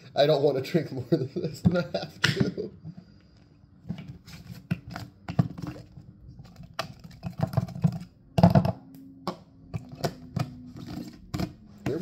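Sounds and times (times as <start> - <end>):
plastic lid clicks and clacks: 6.5 - 12.0.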